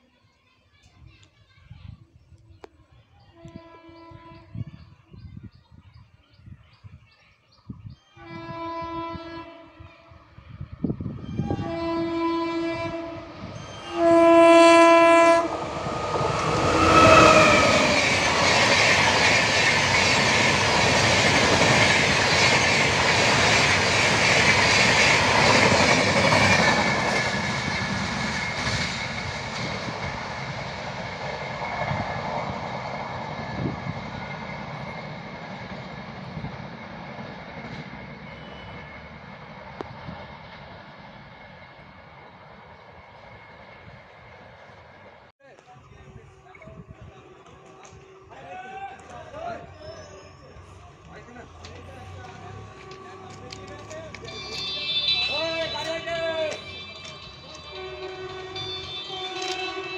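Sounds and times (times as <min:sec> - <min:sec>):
locomotive horn blasts: 0:08.2 - 0:09.9, 0:11.5 - 0:15.7, 0:52.6 - 0:59.9
train passing at speed: 0:09.8 - 0:59.9.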